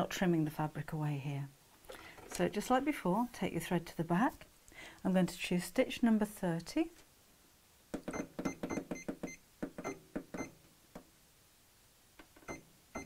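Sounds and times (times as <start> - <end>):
sewing machine button beeps: 12.4 - 13.0.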